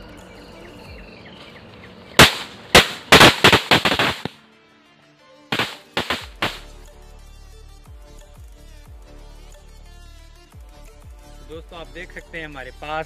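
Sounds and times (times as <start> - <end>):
firecrackers banging: 2.2 - 4.4, 5.5 - 6.7.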